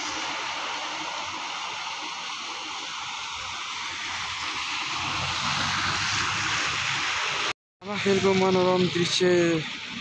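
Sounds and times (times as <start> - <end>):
tyres swishing through water: 2.5 - 7.5.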